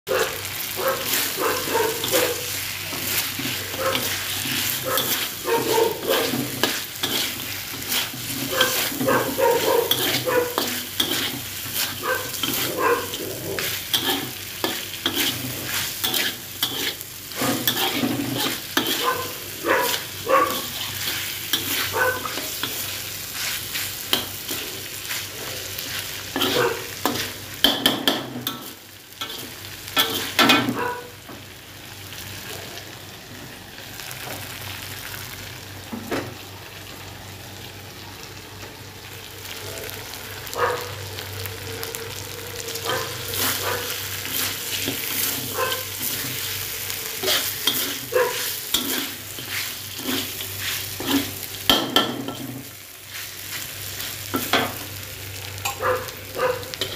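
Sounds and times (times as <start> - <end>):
meat sizzling in a wok: 0.1 - 56.9
metal spatula scraping a wok: 1.0 - 30.8, 43.2 - 54.8.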